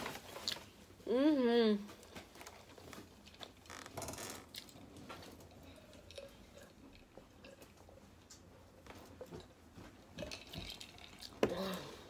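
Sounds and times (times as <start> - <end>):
glass jar rattling: 10.2 - 11.4.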